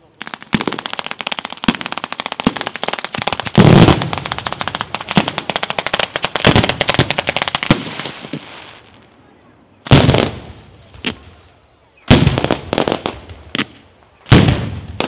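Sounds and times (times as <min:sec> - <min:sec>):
firecracker barrage: 0:00.0 - 0:09.2, 0:09.8 - 0:15.0.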